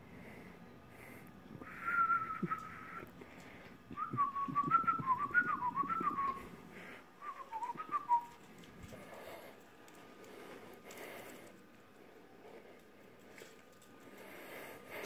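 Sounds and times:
person whistling: 0:01.7 - 0:03.0, 0:04.0 - 0:06.4, 0:07.2 - 0:08.3.

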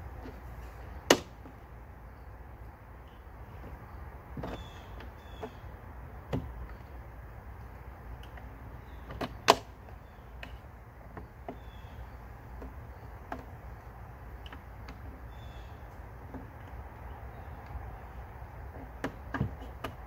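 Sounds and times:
sharp plastic snap: 0:09.1 - 0:09.8.

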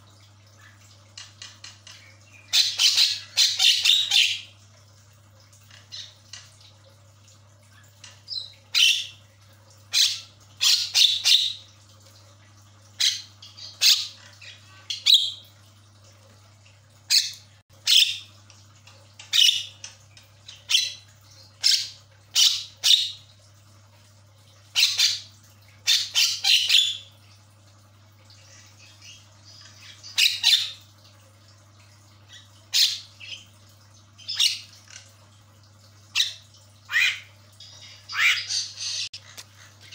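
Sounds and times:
faint steady hum: 0:00.0 - 0:39.9.

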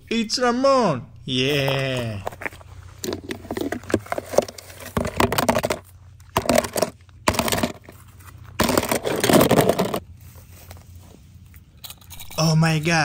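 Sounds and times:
toy cars clattering in plastic tub: 0:03.0 - 0:08.0, 0:08.6 - 0:10.0.

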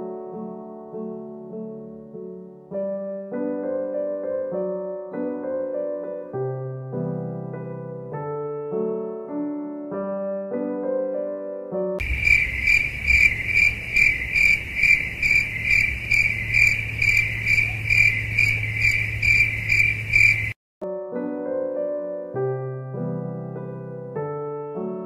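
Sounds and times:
soft piano music: 0:00.0 - 0:12.0, 0:20.8 - 0:25.0
insect chirping: 0:12.0 - 0:20.6.

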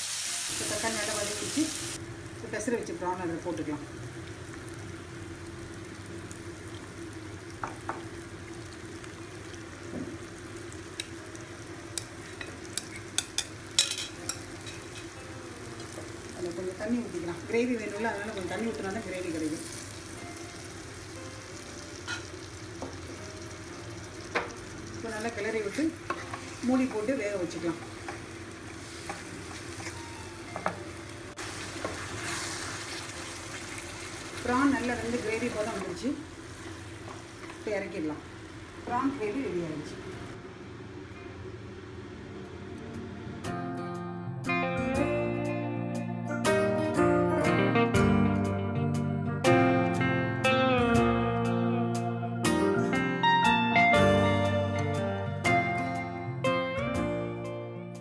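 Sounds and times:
prawns sizzling in a pan: 0:00.0 - 0:40.4
utensils tapping against pan: 0:11.9 - 0:15.1
faint steady hum: 0:34.4 - 0:44.5.

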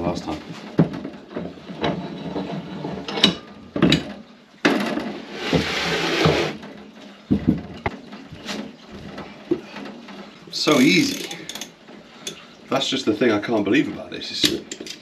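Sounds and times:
metal clicks and knocks: 0:00.6 - 0:05.2, 0:06.6 - 0:10.4, 0:14.4 - 0:15.0.

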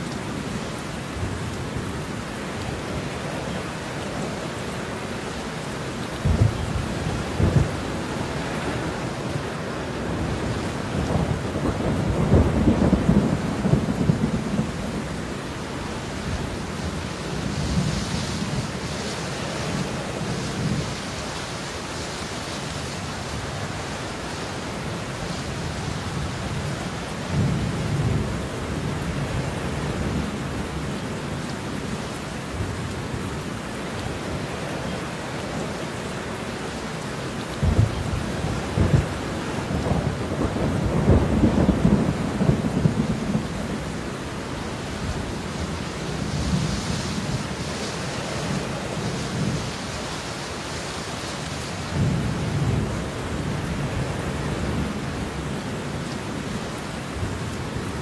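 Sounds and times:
steady rain: 0:00.0 - 0:58.0
thunder rolling: 0:10.4 - 0:14.8, 0:37.6 - 0:43.7.

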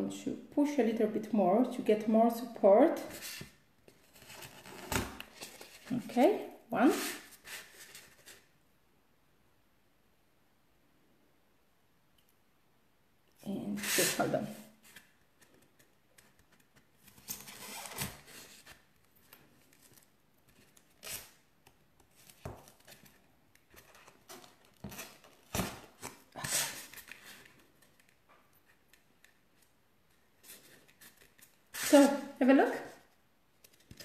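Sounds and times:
soft handling rustles: 0:22.0 - 0:34.0.

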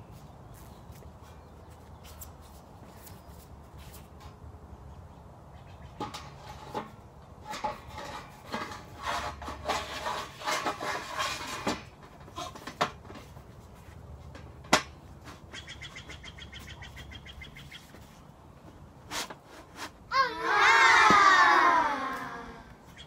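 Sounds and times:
metal-on-metal scraping and rattling: 0:06.0 - 0:15.7.

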